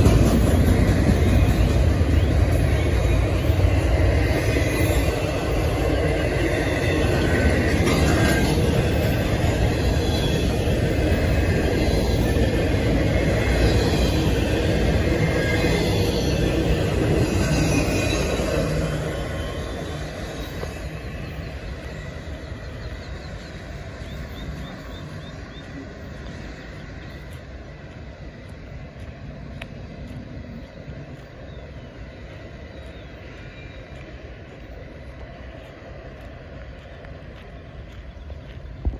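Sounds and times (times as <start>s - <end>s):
train wheels rumbling on track: 0.0s - 38.9s
high wheel squeal: 15.2s - 25.6s.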